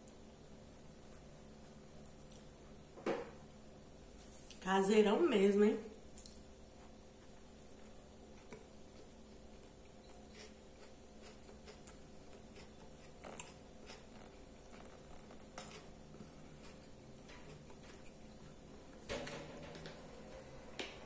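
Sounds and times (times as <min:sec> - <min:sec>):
person chewing food: 0:06.1 - 0:18.9.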